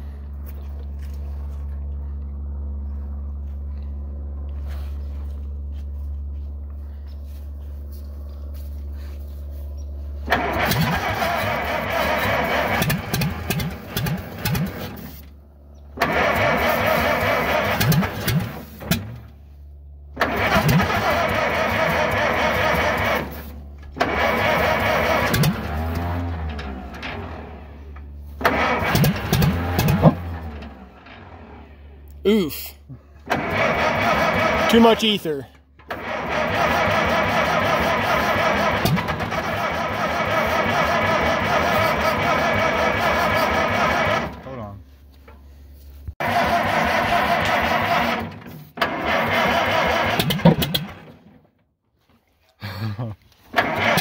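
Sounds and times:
steady low hum: 0.0s - 16.0s
tractor starter cranking engine: 10.2s - 19.4s, 20.0s - 45.4s, 46.2s - 51.6s, 53.3s - 54.0s.

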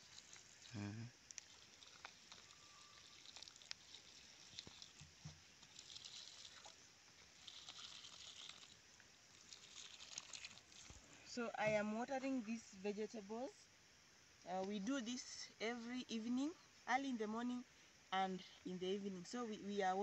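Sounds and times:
small ticks: 0.0s - 11.1s
water pouring onto soil: 0.0s - 11.3s.

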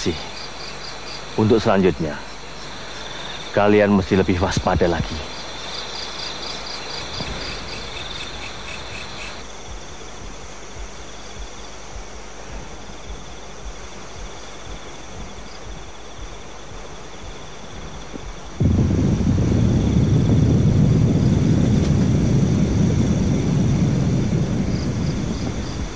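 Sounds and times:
crickets chirping: 0.0s - 25.9s
loud low rumble: 16.7s - 25.9s.

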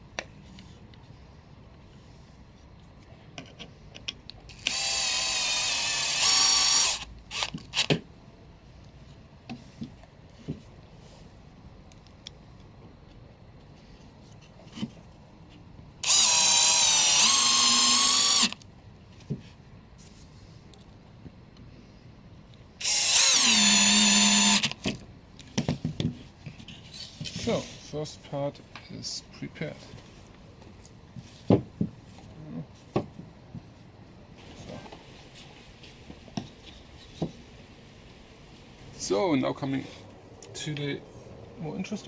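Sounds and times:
cordless drill motor whining: 4.5s - 7.9s, 16.0s - 18.6s, 22.8s - 24.8s.

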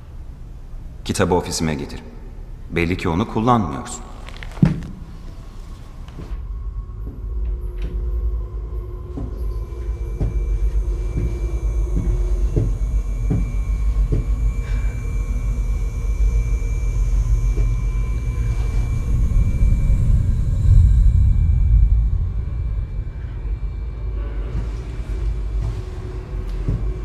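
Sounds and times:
low rumbling drone: 4.0s - 27.0s
thin sustained high tones: 8.0s - 26.5s.

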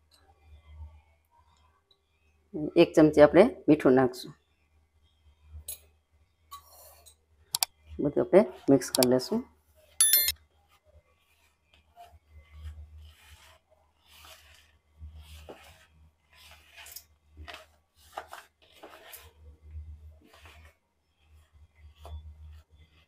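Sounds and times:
fingers rubbing flour in bowl: 10.7s - 23.0s.

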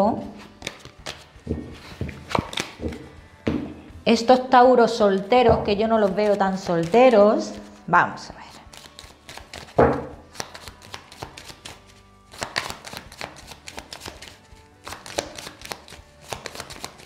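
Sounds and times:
soft background music: 0.0s - 17.0s
cards being shuffled: 0.2s - 3.1s, 5.1s - 7.9s, 8.5s - 17.0s.

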